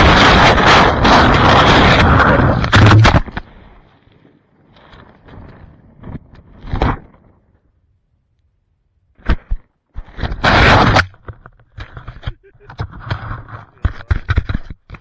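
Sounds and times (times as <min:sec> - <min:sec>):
loud rustling scrape: 0:10.0 - 0:14.8.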